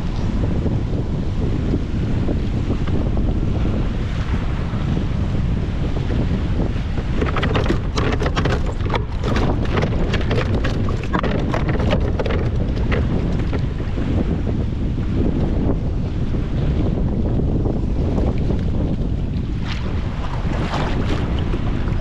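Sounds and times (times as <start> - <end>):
wind buffeting microphone: 0.0 - 22.0
clicks and knocks on plastic kayak: 6.7 - 14.2.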